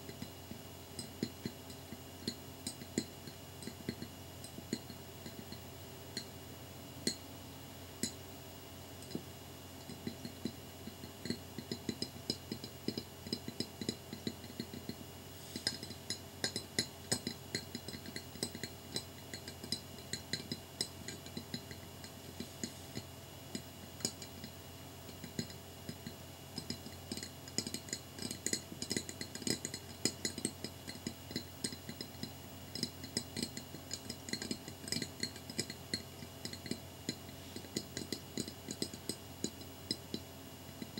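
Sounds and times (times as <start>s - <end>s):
fingernails tapping on glass: 9.0s - 40.9s.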